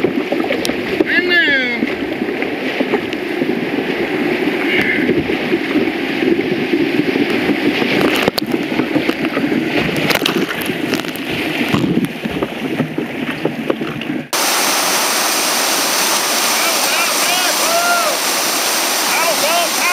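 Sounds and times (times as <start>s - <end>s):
waves slapping over deck: 0.0s - 19.9s
whitewater rapids rushing: 14.3s - 19.9s
bright rushing hiss: 14.4s - 19.9s.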